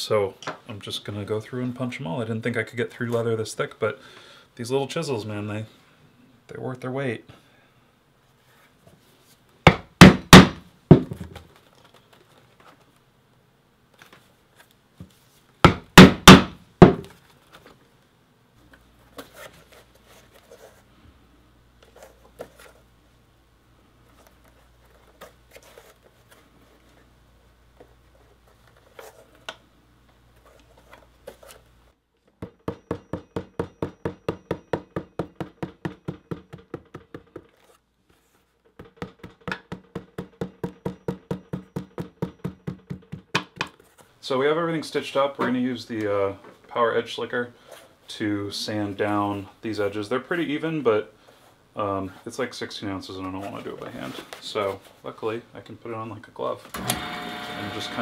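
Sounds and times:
hammer striking chisel through leather: 15.7 - 17.0, 32.4 - 37.4.

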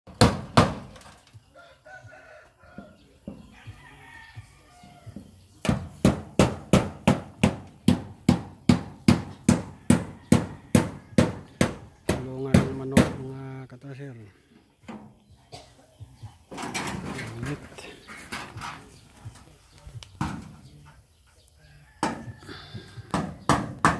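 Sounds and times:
rooster crowing faintly: 21.4 - 23.1.

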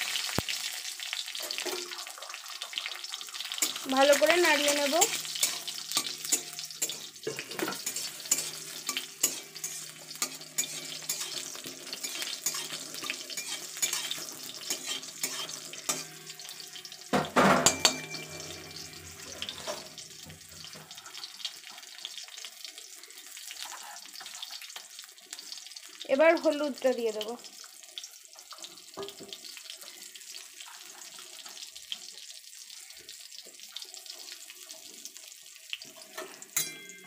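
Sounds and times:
seeds crackling in hot oil: 0.0 - 37.0
spatula scraping in a wok: 1.1 - 22.2, 23.4 - 25.5, 29.8 - 31.7.

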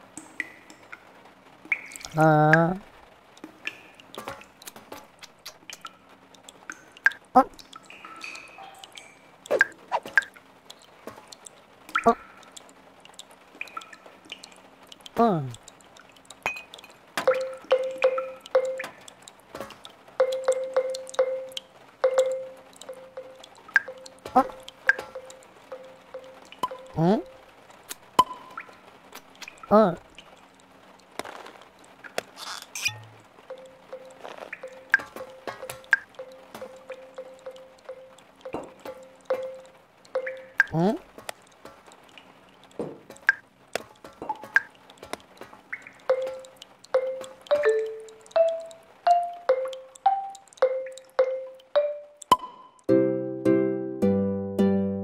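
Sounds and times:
water drops pinging in cans: 0.0 - 2.7, 3.4 - 52.9
cartoon water drops plinking: 16.4 - 19.2, 20.2 - 27.4, 28.2 - 28.8, 32.8 - 41.0, 45.7 - 53.0.

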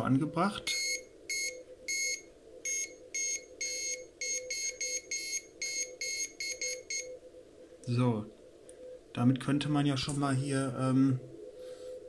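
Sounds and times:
morse code beeps: 0.7 - 7.2.

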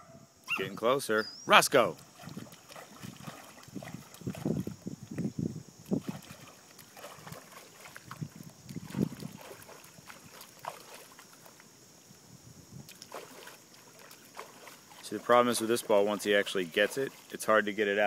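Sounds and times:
dog splashing pool water: 1.8 - 5.0, 5.9 - 11.7, 12.9 - 18.0.

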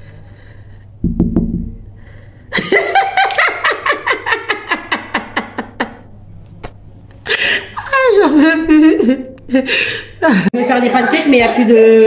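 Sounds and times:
dull low thump: 1.0 - 1.8
person laughing hard: 2.5 - 6.0.

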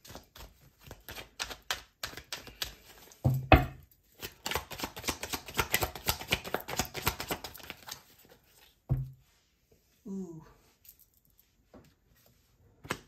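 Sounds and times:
cards shuffling by hand: 0.0 - 3.2, 4.1 - 8.8.

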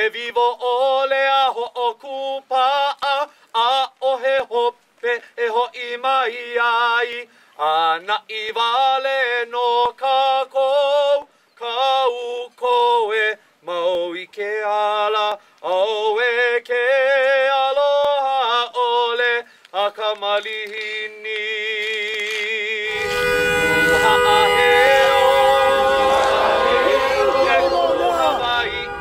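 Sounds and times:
person chanting song: 22.8 - 29.0.

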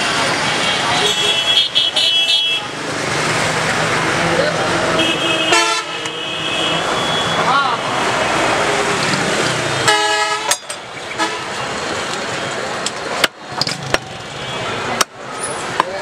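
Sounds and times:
street traffic: 0.0 - 16.0
vehicle horn honk: 0.6 - 2.7, 5.0 - 7.4, 9.8 - 10.6.

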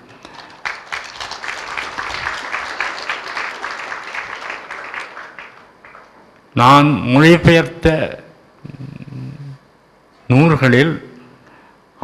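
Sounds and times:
audience applauding: 0.2 - 6.2.

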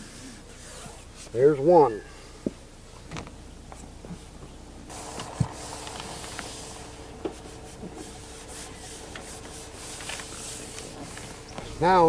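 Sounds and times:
hands rubbing on solar panel: 4.9 - 12.0
steady hiss: 4.9 - 12.0.

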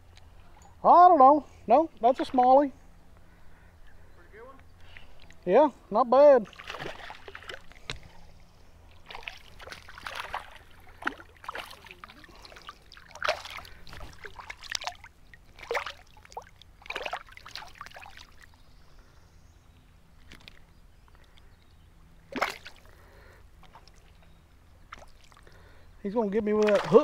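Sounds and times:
water splashing against kayak: 6.5 - 8.2, 8.9 - 18.5, 26.6 - 27.0.

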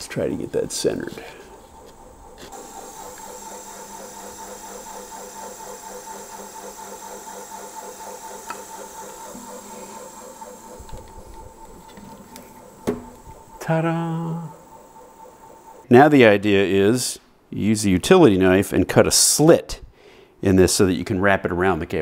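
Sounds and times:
drill press motor hum: 0.0 - 15.9.

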